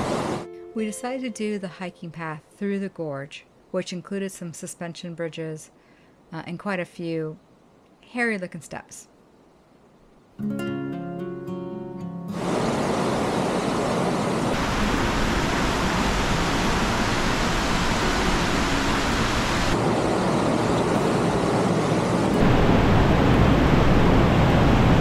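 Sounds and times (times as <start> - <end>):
stream rushing over rocks: 14.6 - 19.8.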